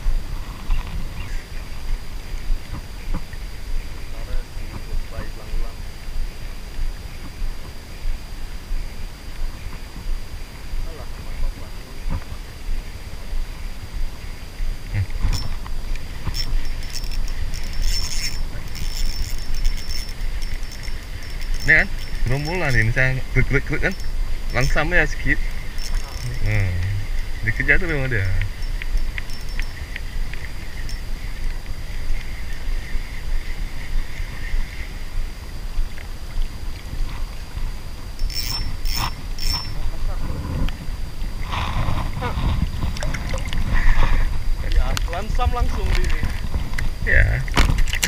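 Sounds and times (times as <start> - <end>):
water rumble: 0.0 - 48.0
wind buffeting microphone: 0.0 - 48.0
spinning reel clicking: 15.3 - 32.6, 38.2 - 39.8.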